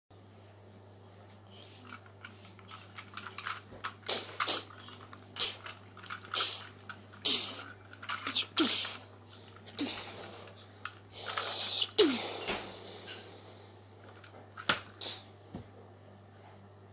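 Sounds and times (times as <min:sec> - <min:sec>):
toys knocking and rustling: 0:01.6 - 0:11.7, 0:14.0 - 0:15.8
breathy mouth-made hissing: 0:04.0 - 0:13.6.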